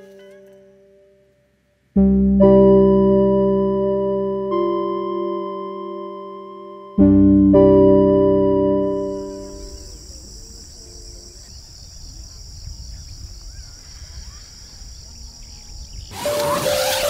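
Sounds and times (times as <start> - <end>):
insects chorus: 9.0 - 17.0
loud rustling: 16.1 - 17.0.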